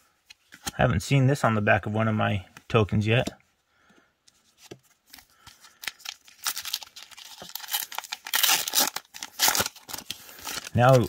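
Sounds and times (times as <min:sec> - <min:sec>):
foil wrapper crinkling and tearing: 0:05.3 - 0:11.0.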